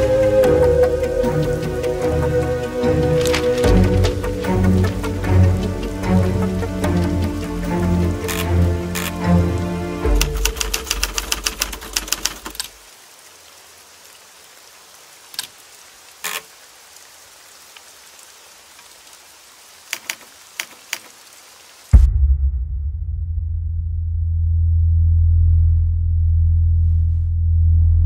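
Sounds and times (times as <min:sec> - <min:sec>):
typewriter keys striking: 0:10.2 - 0:12.7
music with deep bass: 0:22.0 - 0:28.0.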